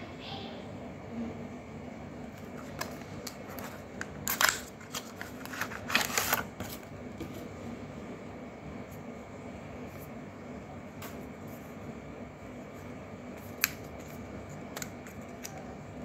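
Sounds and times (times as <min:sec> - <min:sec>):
carton clicks and scraping rustles: 0:02.4 - 0:07.5.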